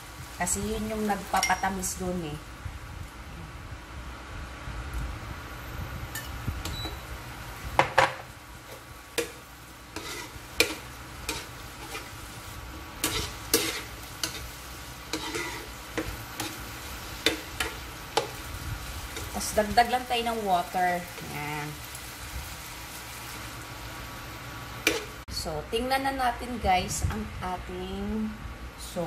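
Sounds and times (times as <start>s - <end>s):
hot pan sizzling: 0.0s - 27.2s
metal spoon scraping pan: 9.2s - 12.2s, 13.0s - 18.4s, 24.8s - 25.2s.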